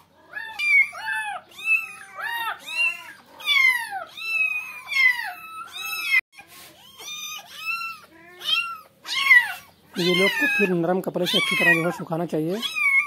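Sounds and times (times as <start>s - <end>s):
kittens mewing: 0.0s - 13.0s.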